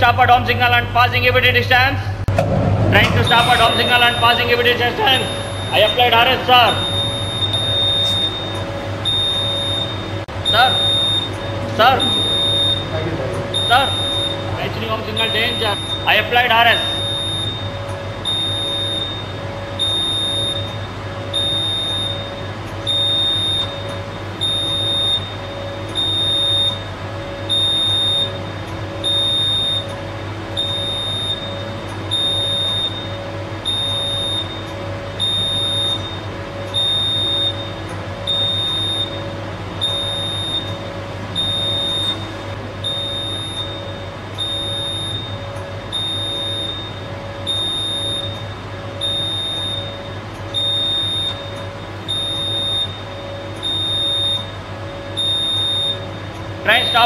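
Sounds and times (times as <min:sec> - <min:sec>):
low hum: 0:02.0 - 0:56.4
train braking: 0:02.4 - 0:17.7
electronic alarm beeping: 0:02.9 - 0:57.0.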